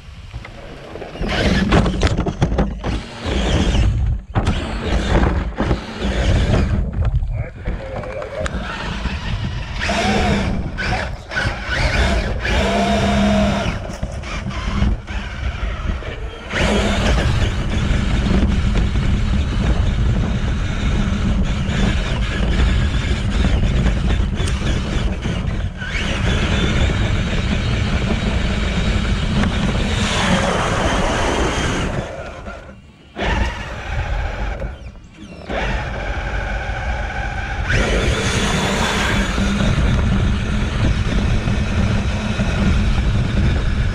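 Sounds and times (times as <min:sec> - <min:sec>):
electric motor and gearbox whining: 0:00.0 - 0:43.9
chassis bumps and rattles: 0:01.1 - 0:30.9.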